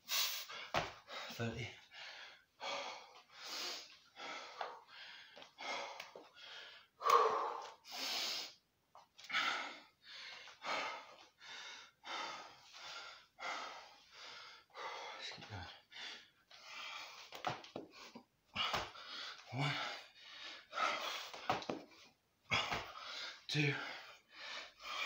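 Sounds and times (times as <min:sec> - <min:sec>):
man breathing hard: 0:00.0 - 0:08.6, 0:09.2 - 0:25.0
man gasping: 0:00.1 - 0:08.5, 0:17.9 - 0:21.5.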